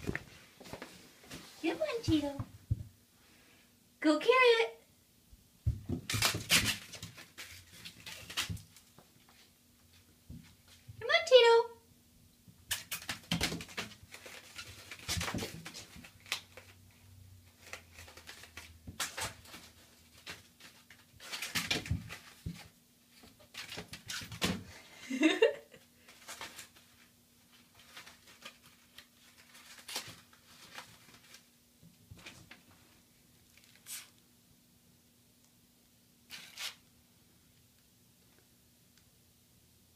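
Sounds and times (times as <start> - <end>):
paper ball crinkling in bathtub: 5.8 - 10.9, 12.6 - 24.7, 26.0 - 34.2, 36.3 - 36.9.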